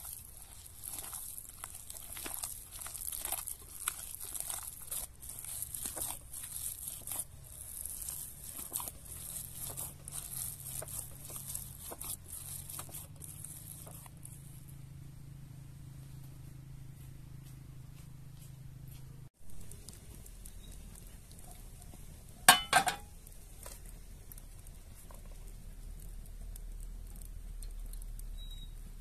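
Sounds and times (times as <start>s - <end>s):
hands mixing food in bowl: 0.0s - 14.5s.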